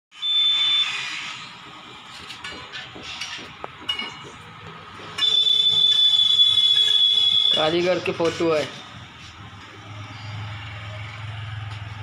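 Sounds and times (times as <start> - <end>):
high-pitched steady tone: 0.1 - 1.5, 3.9 - 7.8.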